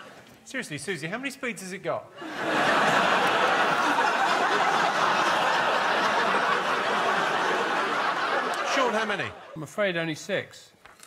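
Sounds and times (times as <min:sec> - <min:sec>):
audience laughing: 0:02.2 - 0:09.8.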